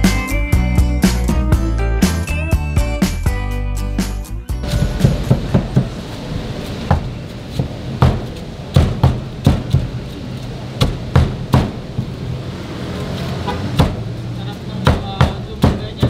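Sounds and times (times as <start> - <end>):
cleaver chopping on wooden block: 8.0 - 10.0, 10.8 - 11.8, 13.7 - 14.1, 14.8 - 16.0.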